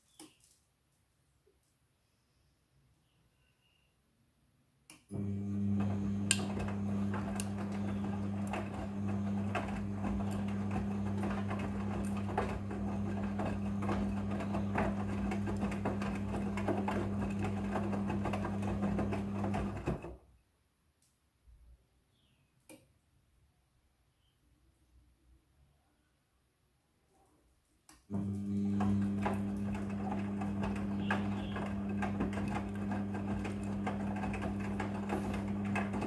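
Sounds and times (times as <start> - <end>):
washing machine motor hum: 5.1 - 20.3, 28.1 - 36.0.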